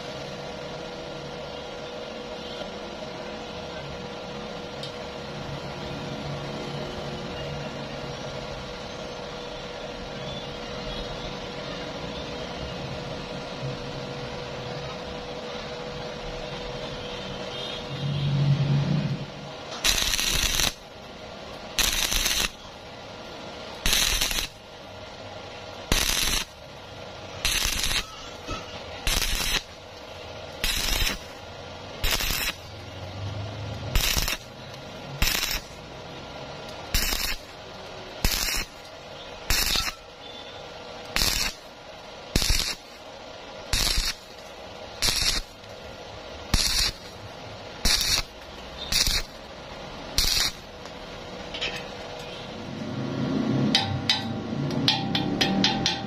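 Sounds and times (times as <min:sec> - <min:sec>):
welding arc crackling: 0:17.5 - 0:56.0.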